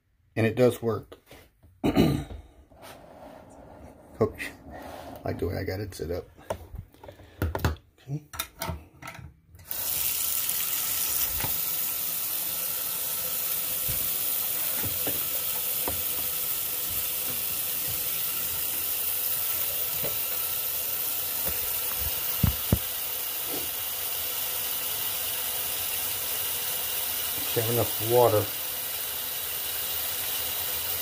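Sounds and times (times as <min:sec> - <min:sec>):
tap water running into sink: 0:09.6 - 0:31.0.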